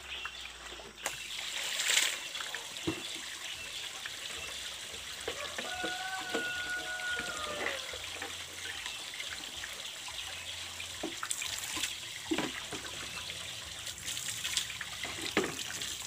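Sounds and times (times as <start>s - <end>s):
water trickling into buckets: 0.0s - 16.0s
plastic buckets knocking: 12.3s - 13.0s.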